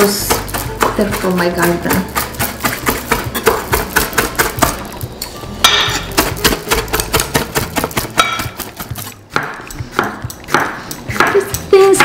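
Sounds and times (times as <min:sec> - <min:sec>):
herbs rustling: 0:00.0 - 0:11.1
knife chopping on wooden board: 0:06.1 - 0:11.4.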